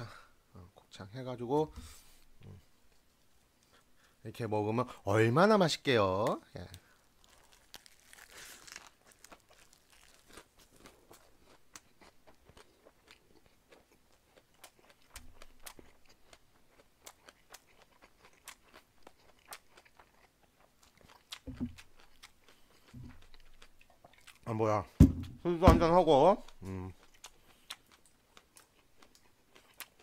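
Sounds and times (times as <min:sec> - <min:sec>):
dull knocks: 0:25.0 - 0:26.0.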